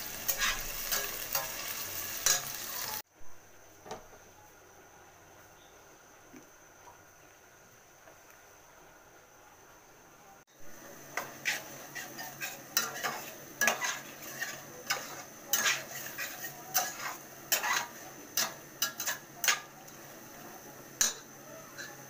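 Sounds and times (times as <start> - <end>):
low sizzle: 0.0 - 22.0
metal utensil scraping steel pot: 0.2 - 2.6, 11.2 - 19.7.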